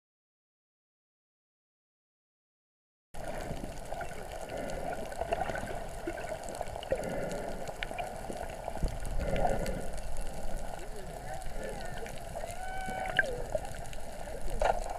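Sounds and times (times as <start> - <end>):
faint clicks and pops: 3.2 - 10.9, 11.5 - 14.9
underwater water hiss: 3.2 - 14.9.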